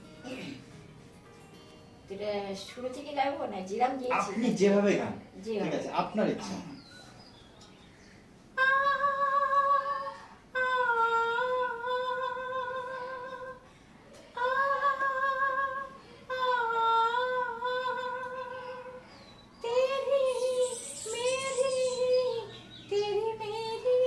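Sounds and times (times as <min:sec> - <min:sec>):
woman singing unaccompanied: 0:08.5 - 0:24.0
singer breathing: 0:13.6 - 0:14.4, 0:15.9 - 0:16.3.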